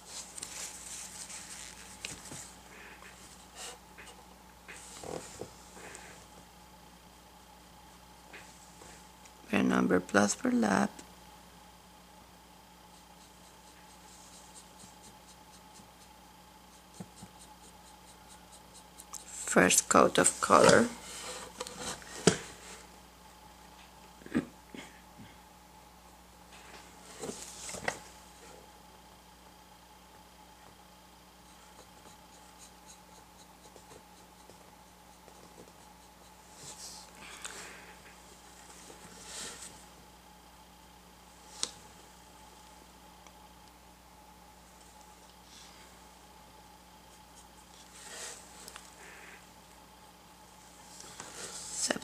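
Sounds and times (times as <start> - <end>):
faint steady hum: 0.0 - 52.0
paintbrush scratching on surface: 12.9 - 16.1, 16.7 - 19.5
paintbrush scratching on board: 12.9 - 19.5, 31.4 - 37.0.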